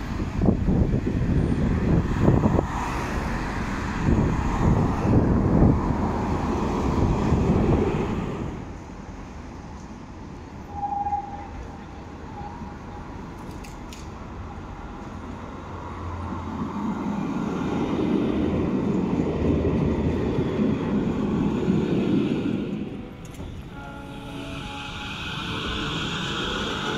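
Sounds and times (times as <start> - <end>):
street background: 0.0 - 26.9
tram rumbling past: 0.0 - 26.9
brief steady tone: 23.0 - 26.3.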